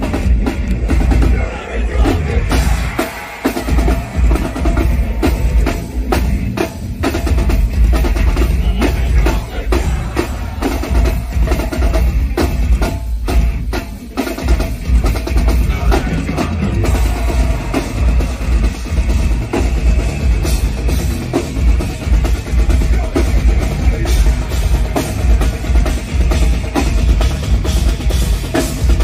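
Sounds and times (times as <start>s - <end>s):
drum kit hammering: 0.0s - 29.0s
heavy metal band playing: 0.0s - 29.0s
bass guitar: 14.9s - 29.0s.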